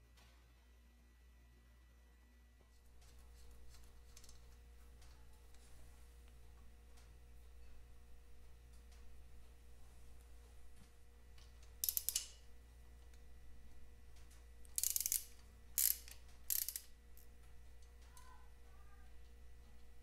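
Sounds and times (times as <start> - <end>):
socket ratchet clicking: 11.6 - 12.4, 14.6 - 17.0.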